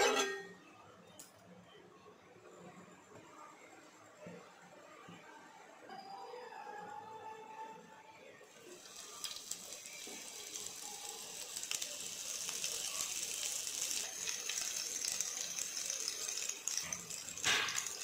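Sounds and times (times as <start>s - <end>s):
peppers sizzling in oil: 8.5s - 18.0s.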